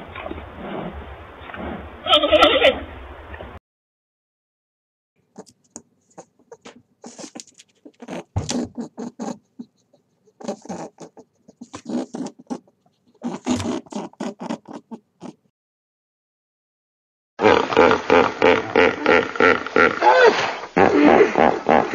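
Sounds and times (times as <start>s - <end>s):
rabbit clicks and grunts: 5.4s - 15.4s.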